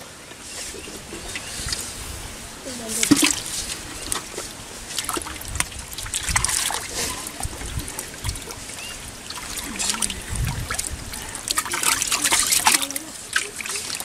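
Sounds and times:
hands splashing in muddy water: 0:02.8 - 0:14.0
low thumps in water: 0:02.9 - 0:12.9.

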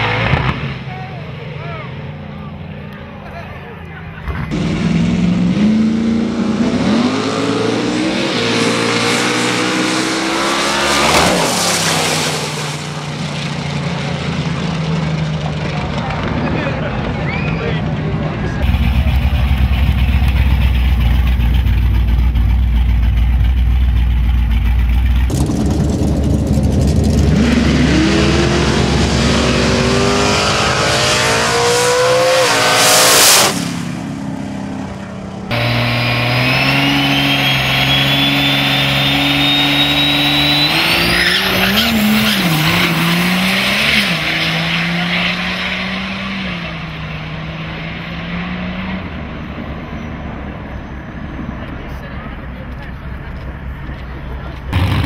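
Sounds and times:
truck engine accelerating hard: 0:00.0 - 0:55.0
truck engine idling: 0:18.0 - 0:27.2
turbo whistle rising in pitch: 0:35.6 - 0:42.0.

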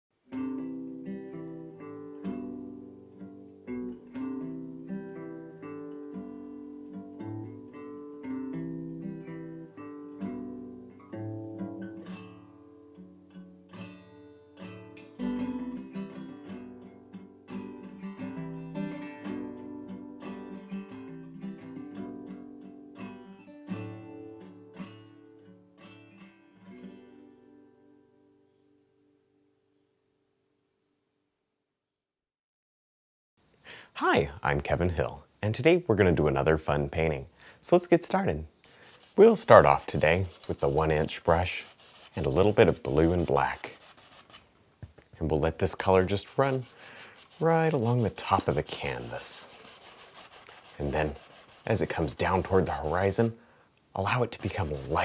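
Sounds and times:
instrumental music of plucked notes: 0:00.2 - 0:27.9.

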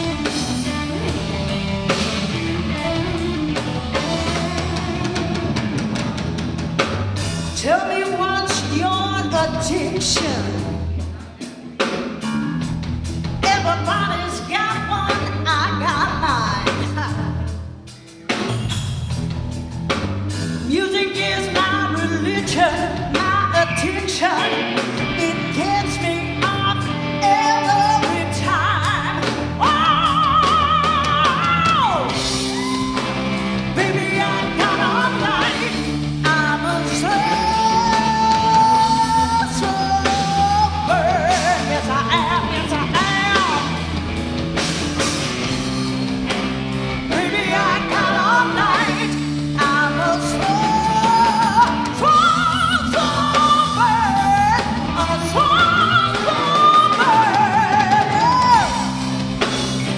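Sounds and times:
blues-rock band playing: 0:00.0 - 0:59.9
woman singing: 0:07.5 - 0:10.8, 0:13.4 - 0:17.5, 0:20.6 - 0:43.8, 0:47.1 - 0:59.0.

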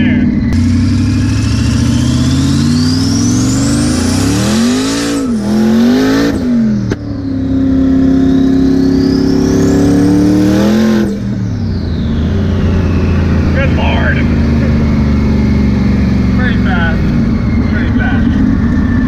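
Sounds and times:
car engine accelerating: 0:00.0 - 0:19.0
turbo whistle: 0:00.5 - 0:06.6, 0:07.2 - 0:13.6.

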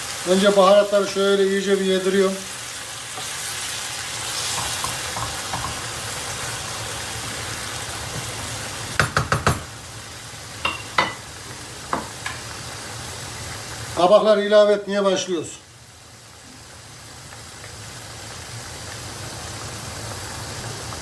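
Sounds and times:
sauce sizzling in a frying pan: 0:00.0 - 0:21.0
spoon knocking against pan: 0:04.5 - 0:05.9, 0:09.0 - 0:09.7, 0:10.6 - 0:11.2, 0:11.9 - 0:12.4.

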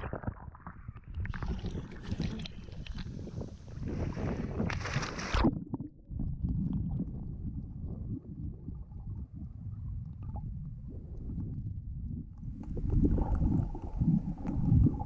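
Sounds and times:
splash into water: 0:00.0 - 0:05.5
underwater sloshing and bubbles: 0:00.0 - 0:15.0.

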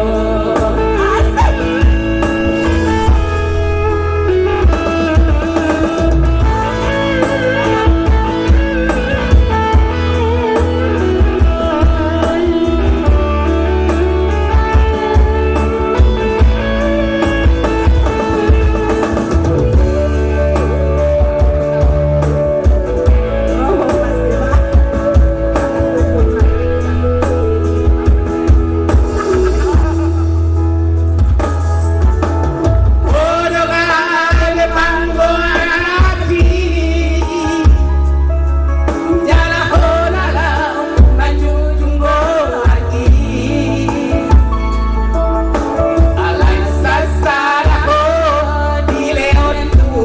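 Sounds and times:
heavy bass line: 0:00.0 - 0:32.0, 0:32.8 - 0:50.0
live electronic dance music: 0:00.0 - 0:50.0
drum beat: 0:01.3 - 0:06.6, 0:24.5 - 0:30.2, 0:34.3 - 0:36.9.

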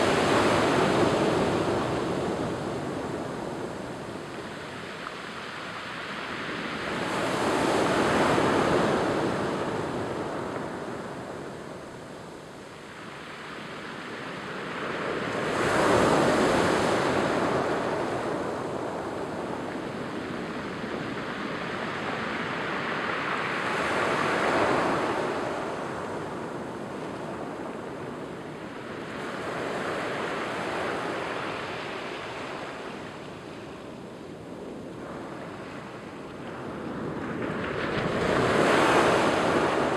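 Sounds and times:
waves washing over pebble beach: 0:36.6 - 0:39.9.

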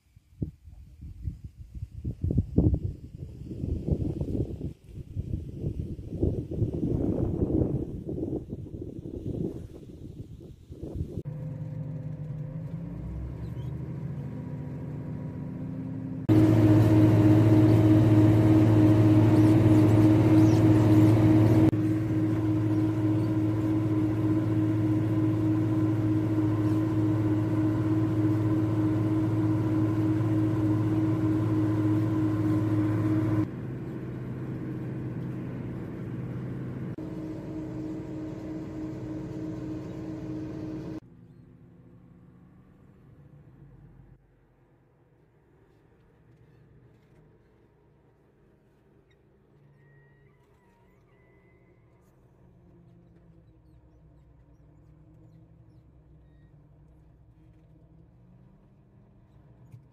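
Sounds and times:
tractor diesel engine running: 0:10.8 - 0:44.1.

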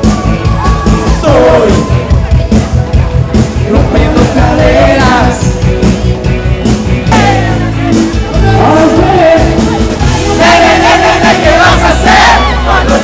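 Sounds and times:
loud dance music with singing: 0:00.0 - 0:13.0.

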